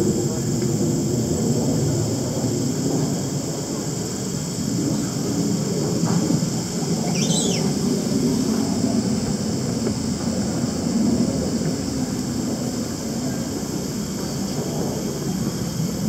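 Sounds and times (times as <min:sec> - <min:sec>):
high hiss: 0:02.5 - 0:10.9
bird chirping: 0:07.1 - 0:07.8.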